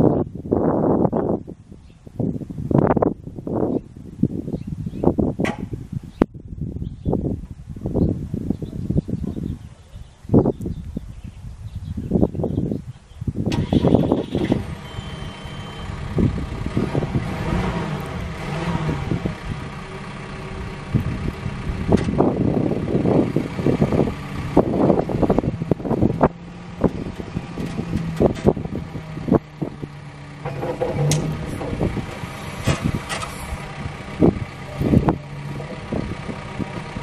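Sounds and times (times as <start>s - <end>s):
knocks and clunks: 5.4s - 5.7s, 26.0s - 33.7s
diesel engine running: 13.5s - 37.0s
short electronic beep: 14.8s - 16.0s
hydraulic arm raising: 25.9s - 36.0s.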